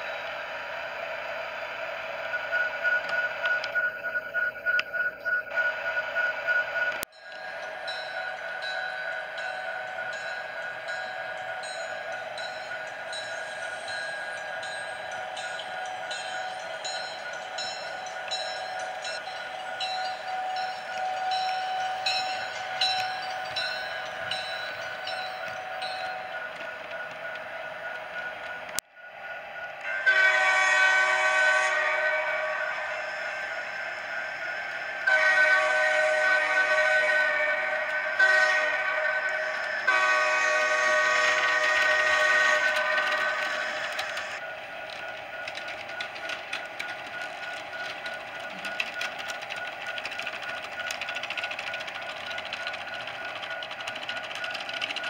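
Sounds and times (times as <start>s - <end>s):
model train horn blasts: 29.8s - 33.2s, 35.0s - 44.4s
wheels clicking over track joints: 41.2s - 55.0s.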